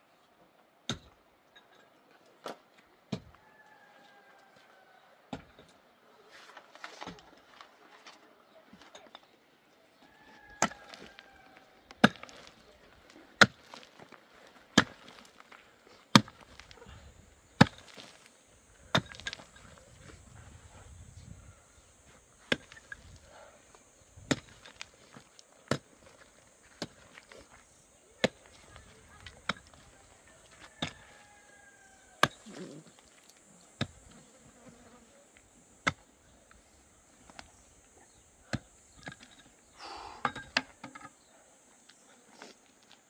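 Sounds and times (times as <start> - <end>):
mattock striking stony soil: 10.4 - 20.4, 22.1 - 31.4, 32.0 - 34.3, 35.7 - 39.6.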